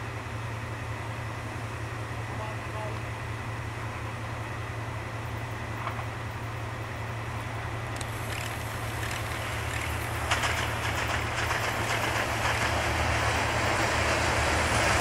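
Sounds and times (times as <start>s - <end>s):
diesel train engine drone: 0.0s - 15.0s
train wheels clicking on rails: 7.9s - 15.0s.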